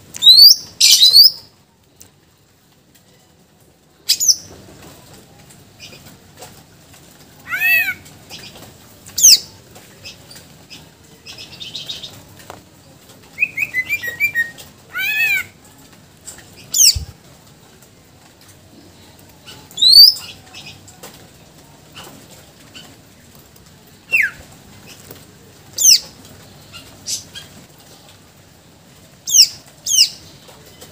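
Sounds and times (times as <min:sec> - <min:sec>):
bird singing whistled phrases: 0:19.8 - 0:20.2.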